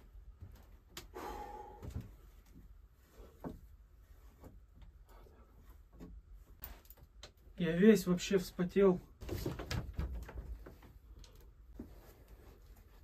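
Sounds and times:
jacket rustling: 9.1s - 13.0s.

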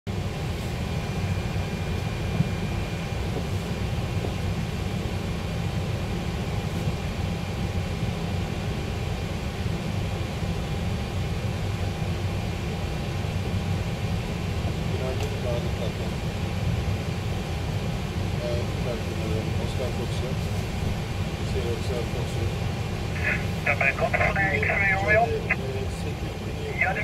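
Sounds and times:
low rumble and hiss of aircraft systems: 0.1s - 27.0s
faint high whine: 23.0s - 27.0s.

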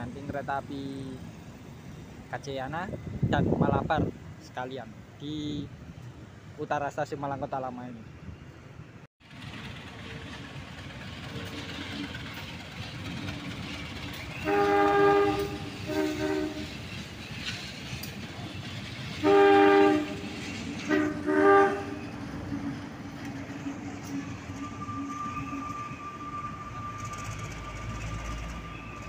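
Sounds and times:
locomotive engine running: 9.2s - 25.0s
multi-tone train horn: 14.4s - 16.8s, 19.2s - 22.1s, 24.5s - 27.2s.

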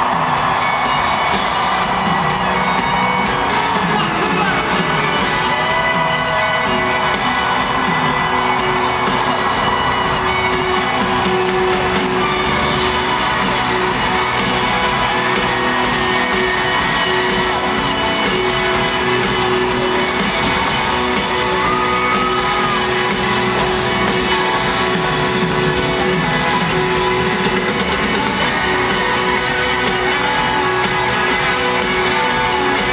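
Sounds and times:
live country band playing: 0.0s - 32.9s.

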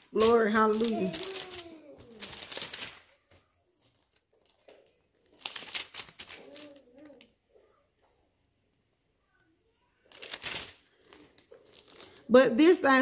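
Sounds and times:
thin pages rustling: 0.0s - 7.3s, 10.1s - 12.3s.

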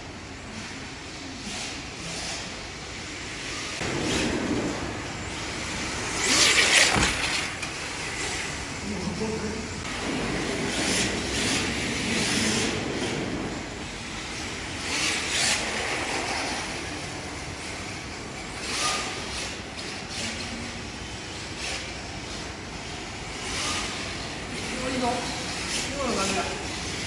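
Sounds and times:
people talking: 8.8s - 9.8s, 24.6s - 26.8s.

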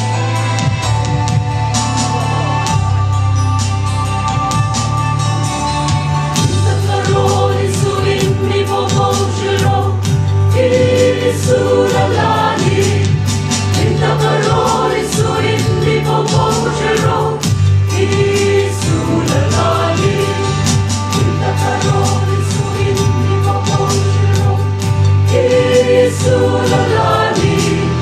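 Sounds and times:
instrumental accompaniment with beat: 0.0s - 28.0s
choir singing a hymn: 6.4s - 28.0s.

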